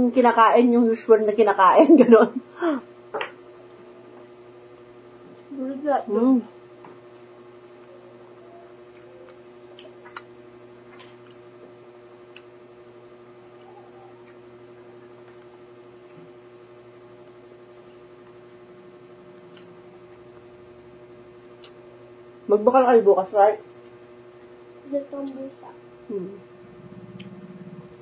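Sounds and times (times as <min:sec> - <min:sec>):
electrical hum: 0:00.0 - 0:28.0
faint chewing clicks: 0:08.9 - 0:16.2, 0:19.2 - 0:20.4, 0:21.5 - 0:22.0, 0:26.9 - 0:28.0.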